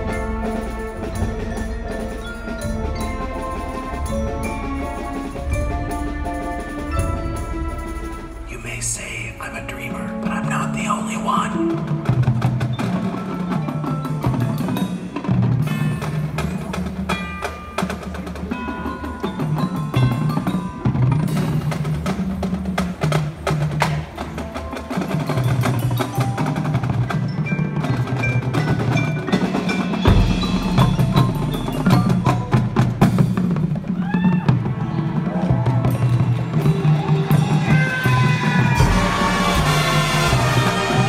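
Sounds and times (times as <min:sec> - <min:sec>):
mallet percussion ringing: 0:00.0 - 0:22.0, 0:24.9 - 0:33.8
marching band playing: 0:00.0 - 0:41.0.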